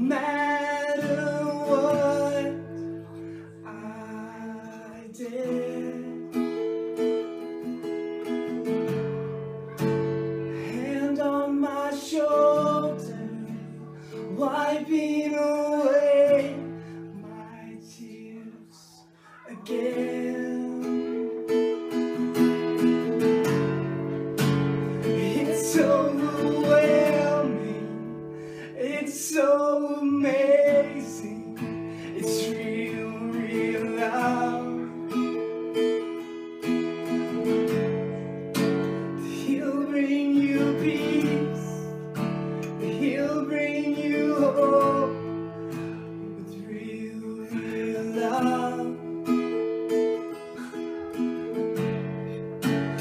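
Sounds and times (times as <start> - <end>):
man singing: 0.0 - 6.7, 10.6 - 21.9, 25.0 - 36.0, 38.6 - 49.6
acoustic guitar strummed: 0.0 - 53.0.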